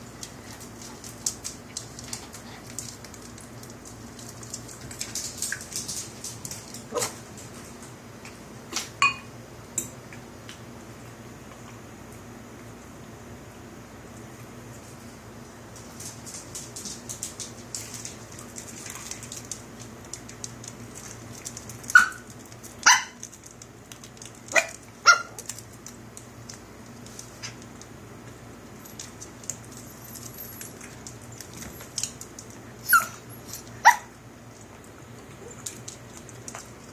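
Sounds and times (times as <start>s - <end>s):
puppy barking: 6.9s - 7.2s, 21.9s - 22.2s, 22.8s - 23.2s, 24.5s - 25.4s, 32.9s - 33.2s, 33.8s - 34.2s.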